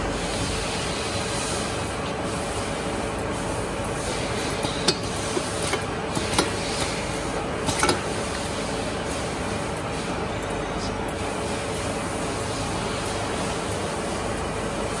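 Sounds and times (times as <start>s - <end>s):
packaging machine running: 2.8s - 10.9s.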